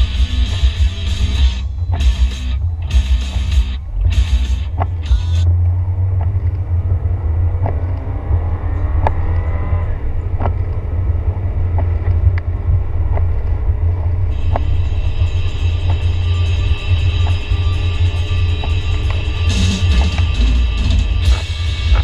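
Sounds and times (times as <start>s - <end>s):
sharp ticks: 0.0s - 5.5s, 14.3s - 22.0s
engine and tyre rumble: 0.0s - 22.0s.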